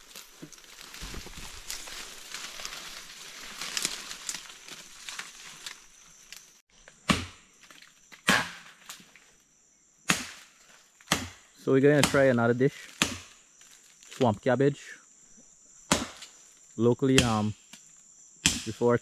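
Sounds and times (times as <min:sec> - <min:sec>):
leaves and brush rustling: 0:00.0 - 0:06.6, 0:12.2 - 0:14.5
machete chopping wood: 0:07.0 - 0:07.5, 0:08.1 - 0:09.0, 0:10.1 - 0:13.4, 0:15.9 - 0:16.3, 0:17.2 - 0:17.5, 0:18.4 - 0:18.8.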